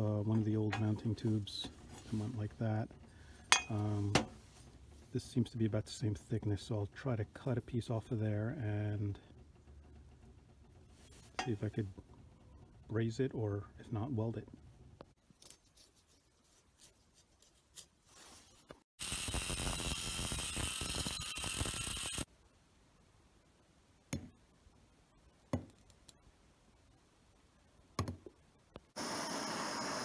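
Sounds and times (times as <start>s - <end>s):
angle grinder cutting metal tube: 19.0s - 22.3s.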